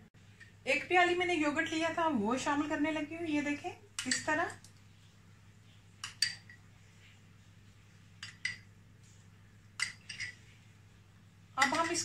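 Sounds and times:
metal spoon clinking on bowls: 0:04.0 - 0:04.5, 0:06.0 - 0:06.6, 0:08.2 - 0:08.7, 0:09.8 - 0:10.4, 0:11.6 - 0:12.0.

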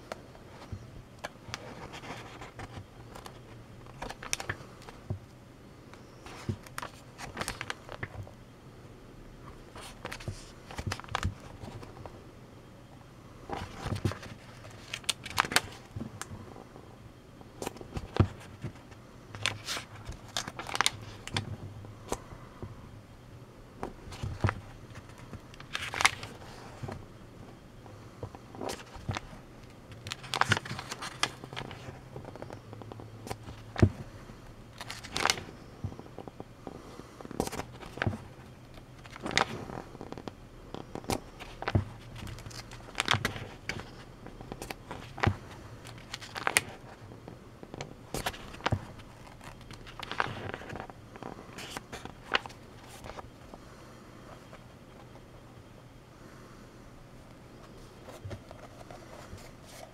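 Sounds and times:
faint steady hum: 0:00.0 - 0:59.9
book pages turning: 0:00.1 - 0:05.2, 0:06.0 - 0:08.3, 0:09.6 - 0:12.0, 0:13.5 - 0:16.4, 0:17.6 - 0:22.3, 0:23.8 - 0:27.0, 0:28.2 - 0:34.1, 0:34.7 - 0:36.4, 0:37.2 - 0:53.6, 0:57.6 - 0:59.9.

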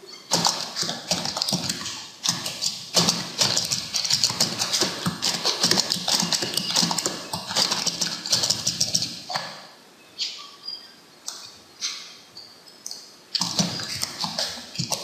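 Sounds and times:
keyboard typing: 0:00.3 - 0:09.5.

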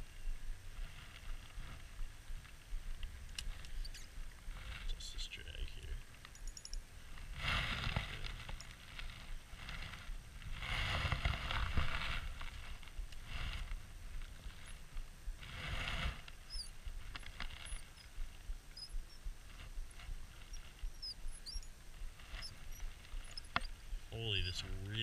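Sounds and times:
fishing reel squeaking: 0:03.7 - 0:04.1, 0:16.5 - 0:18.1, 0:18.8 - 0:19.2, 0:20.0 - 0:23.7.

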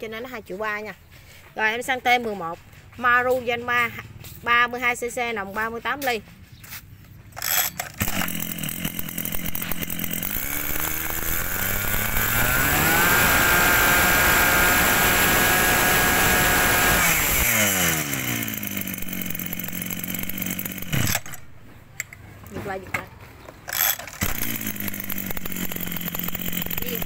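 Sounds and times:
brush-cutter engine revving: 0:07.3 - 0:21.8, 0:23.5 - 0:27.0.

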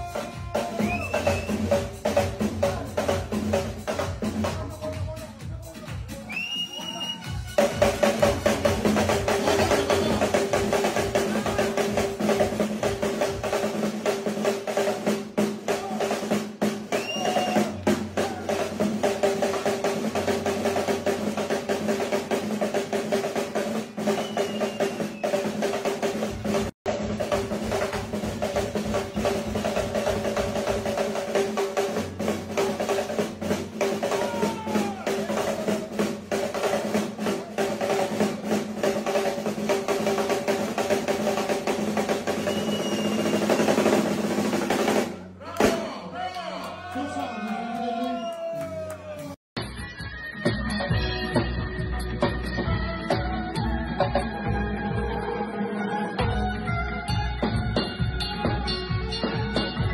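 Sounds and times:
snare drum rolls: 0:00.0 - 0:46.0.

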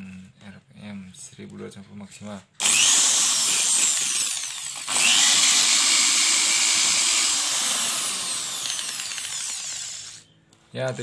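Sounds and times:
electric car polisher whining: 0:02.6 - 0:10.2.

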